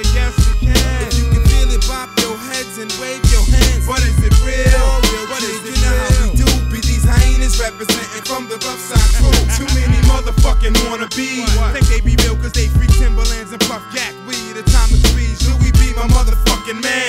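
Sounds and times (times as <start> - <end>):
heavy bass: 0.0 - 2.1, 3.2 - 7.9, 9.0 - 13.6, 14.7 - 16.6
rapping over a beat: 0.0 - 17.0.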